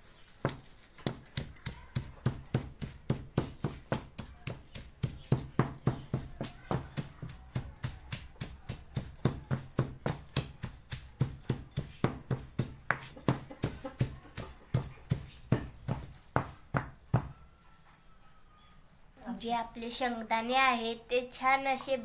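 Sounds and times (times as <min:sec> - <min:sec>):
pestle pounding in stone mortar: 0:00.4 - 0:17.4.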